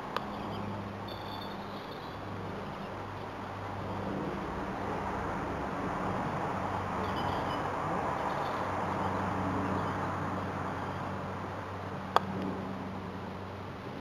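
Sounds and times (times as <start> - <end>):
bird chirp: 7.0 - 10.1.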